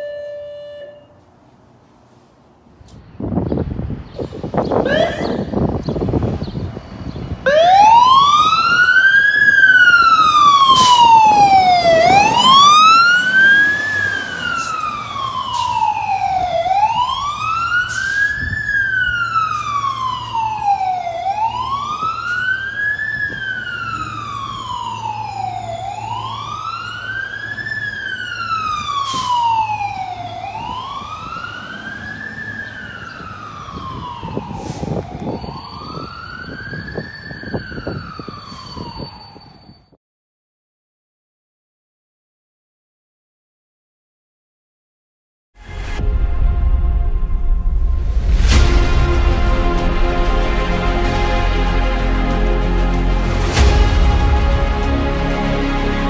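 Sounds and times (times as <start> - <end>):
fire engine siren wailing: 0.0 - 1.2, 4.7 - 39.9, 48.2 - 56.0.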